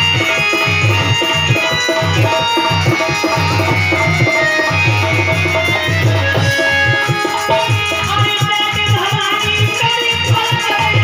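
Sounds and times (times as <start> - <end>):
sustained melody notes: 0.0 - 8.6
hand drum quick rhythm: 0.0 - 11.0.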